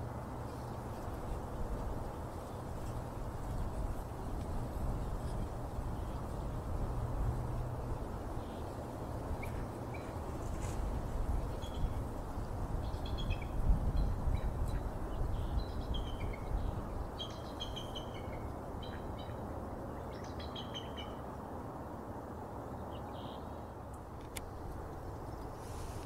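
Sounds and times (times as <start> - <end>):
low outdoor rumble: 0.0 - 20.2
bird chirping: 12.8 - 19.4, 20.0 - 21.2.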